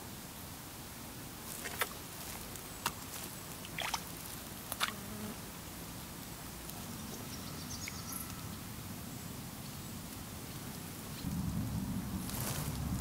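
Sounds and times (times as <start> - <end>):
fish splashing at water surface: 3.6 - 4.9.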